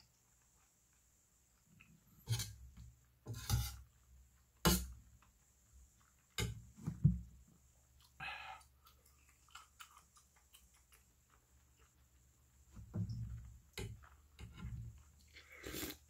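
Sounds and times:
metal spoon scraping metal pot: 2.2s - 2.6s, 3.3s - 3.8s
person chewing: 7.9s - 12.3s, 13.4s - 16.0s.

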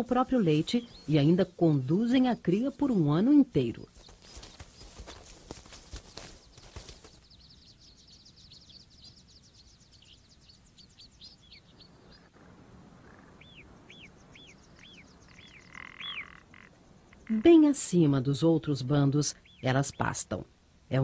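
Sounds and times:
small birds chirping: 0.0s - 21.0s
crackling rustle: 3.8s - 7.4s.

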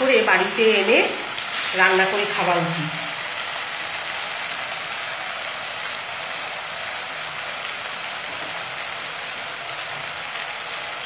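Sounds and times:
vegetables sizzling in a pan: 0.0s - 11.0s.

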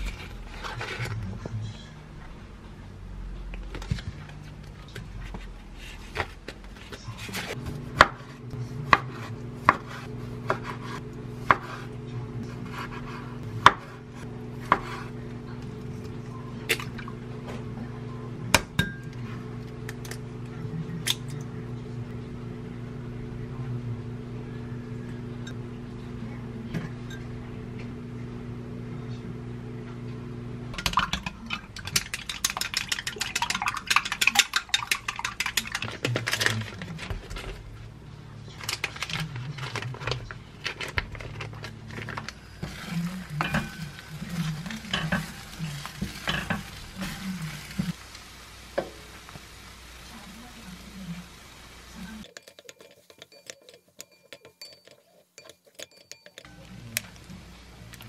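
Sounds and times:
microwave oven humming: 7.6s - 31.9s, 36.5s - 52.2s, 56.4s - 58.0s.

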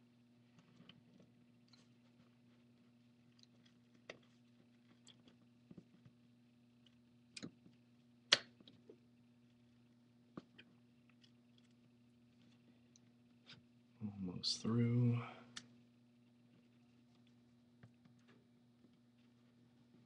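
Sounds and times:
faint steady hum: 0.0s - 20.0s
adhesive clicks and crackles: 3.2s - 6.1s.

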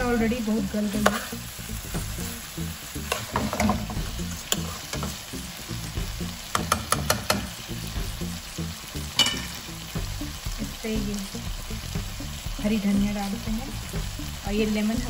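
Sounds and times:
food sizzling in a frying pan: 0.0s - 15.0s
spatula scraping a pan: 0.9s - 1.4s, 3.1s - 5.2s.

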